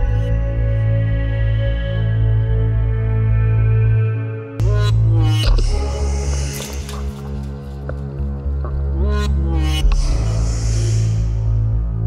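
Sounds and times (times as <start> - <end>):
ambient synthesizer music: 0.0 - 12.0.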